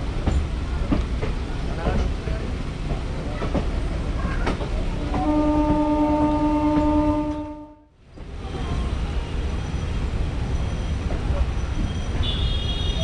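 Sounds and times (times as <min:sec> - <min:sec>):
train running rumble: 0:00.0 - 0:13.0
train horn blast: 0:05.0 - 0:08.0.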